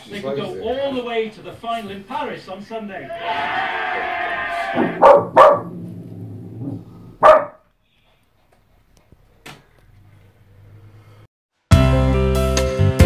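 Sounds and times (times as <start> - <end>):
small dog barking: 5.0 - 5.7, 7.2 - 7.6.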